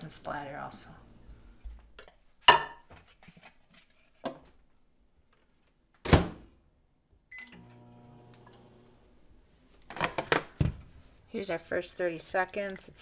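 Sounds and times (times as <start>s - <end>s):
microwave humming: 7.3s - 9.1s.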